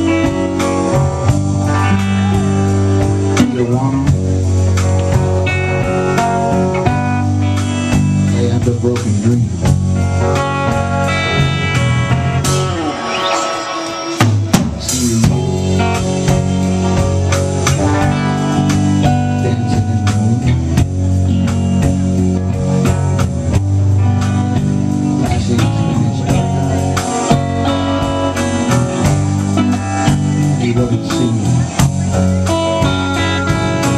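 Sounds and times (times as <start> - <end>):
live rock band playing: 0.0 - 33.9
guitar line sliding in pitch: 10.4 - 20.6.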